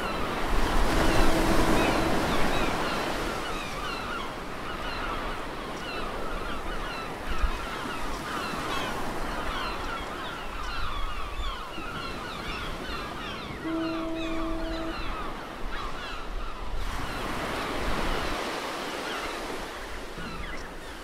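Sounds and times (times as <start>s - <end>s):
surf: 0.0s - 16.1s
wind: 0.0s - 21.0s
flock of birds honking: 0.1s - 5.3s, 13.0s - 15.6s.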